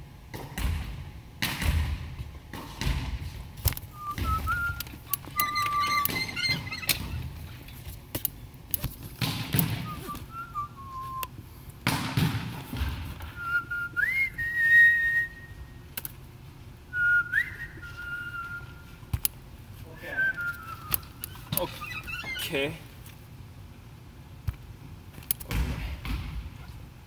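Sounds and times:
volleyballs hit and bouncing: 0.1 - 10.4, 11.2 - 13.6, 20.5 - 23.0, 24.4 - 26.9
high squeaky tones: 4.2 - 7.8, 20.6 - 22.8.

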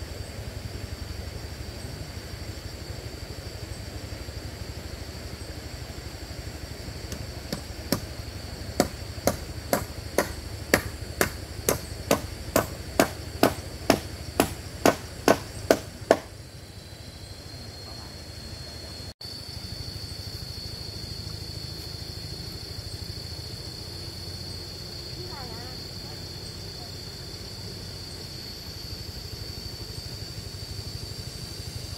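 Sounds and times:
hammer blows on timber: 8.8 - 16.4.

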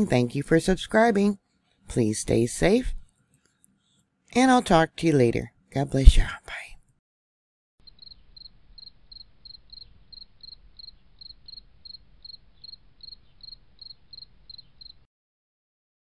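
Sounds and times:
cricket chirping: 7.8 - 15.1.

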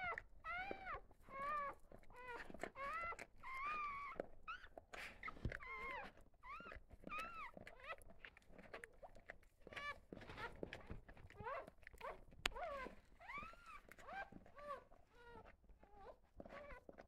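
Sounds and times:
puppies squealing: 11.4 - 16.8.

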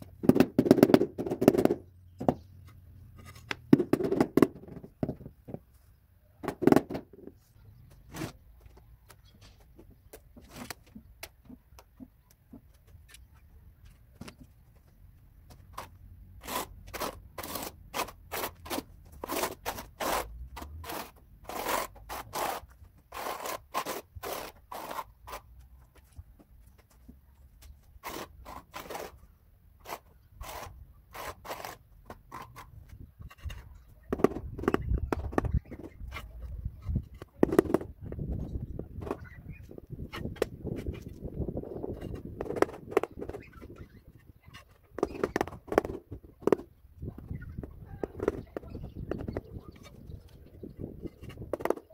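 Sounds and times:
trowel scraping tile adhesive: 15.8 - 25.5, 28.0 - 29.2, 29.8 - 37.8.

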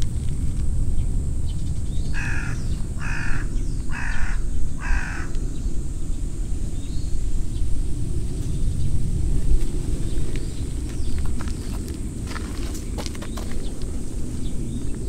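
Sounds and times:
steady low rumble: 0.0 - 15.0
crow cawing: 2.1 - 5.5.

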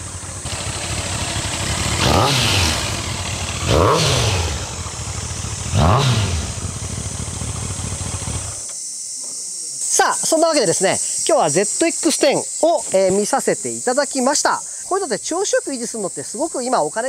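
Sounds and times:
motorcycle engine idling and revving: 0.0 - 8.7.

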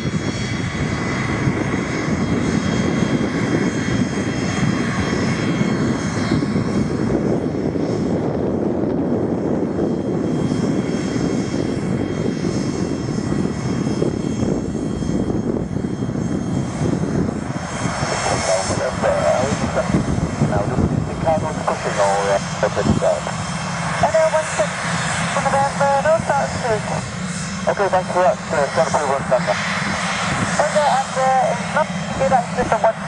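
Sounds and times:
jet engines taxiing: 0.0 - 33.0.

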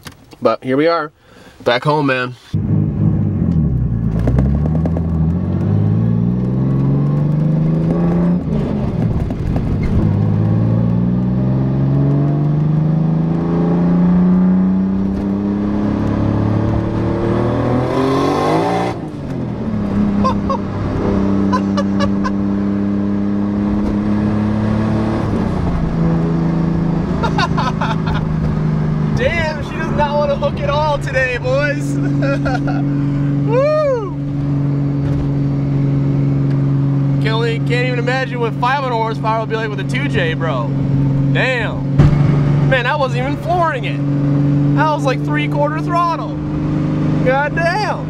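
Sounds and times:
car engine accelerating: 2.5 - 48.0.

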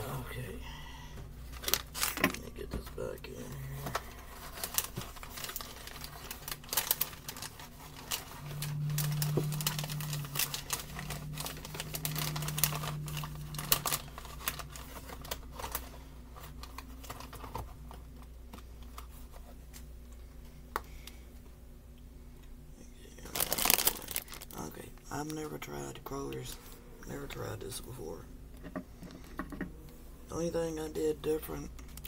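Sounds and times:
low steady hum: 0.0 - 32.0.

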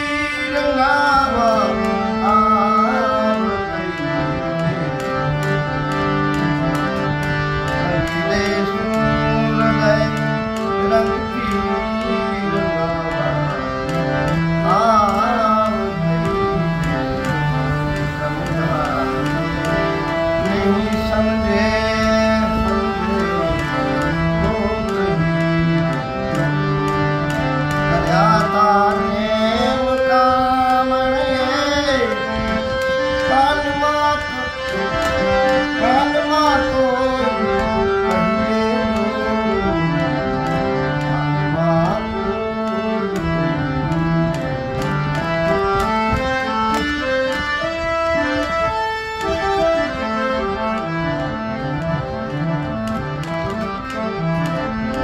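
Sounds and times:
man singing: 0.0 - 26.6, 27.7 - 44.3
harmonium playing chords: 0.0 - 55.0
light steady tapping beat: 1.1 - 55.0.

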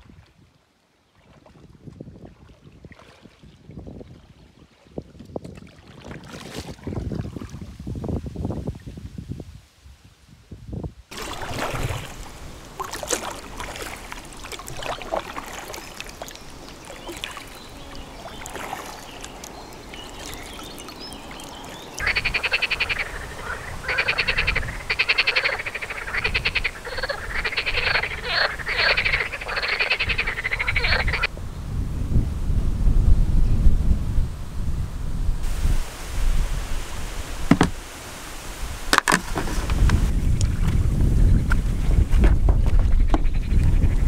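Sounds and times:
frogs croaking: 11.2 - 31.3, 42.7 - 44.0.

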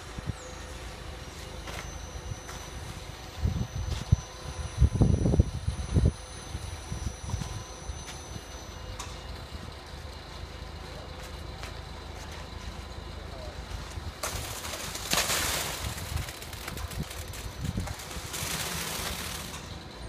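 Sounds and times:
wet concrete pouring: 14.3 - 19.7.

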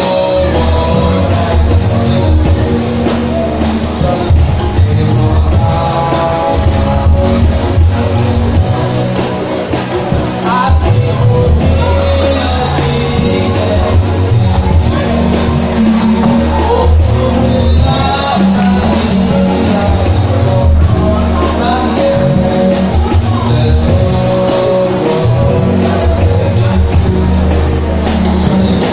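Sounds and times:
amplified accompaniment with bass: 0.0 - 28.9
lead singer through microphone: 0.0 - 28.9.

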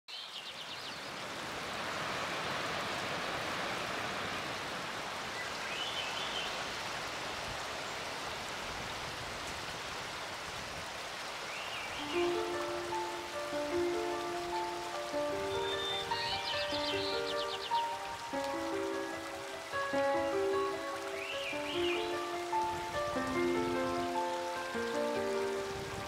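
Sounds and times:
waterfall rushing: 1.0 - 26.0
bird chirps: 15.4 - 18.0, 21.2 - 22.2.

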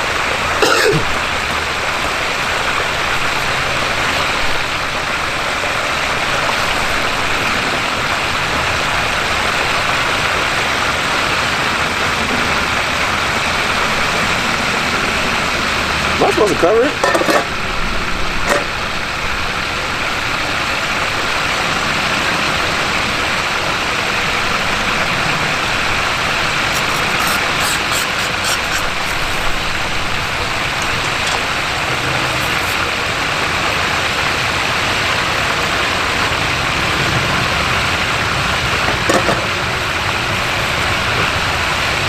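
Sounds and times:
oil frying: 0.0 - 42.0.

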